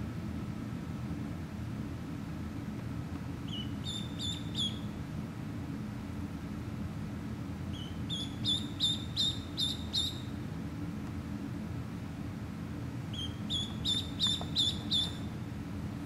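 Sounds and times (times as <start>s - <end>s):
ducklings peeping: 3.5s - 4.9s, 7.7s - 10.3s, 13.1s - 15.4s.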